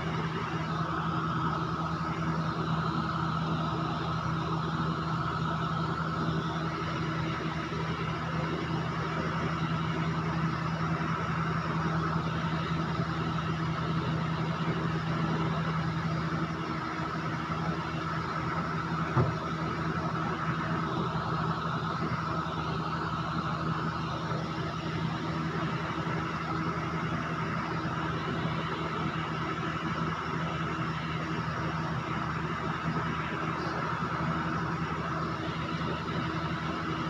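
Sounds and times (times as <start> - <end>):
mechanical hum with whine: 0.0 - 37.0
brief knock: 19.2 - 19.4.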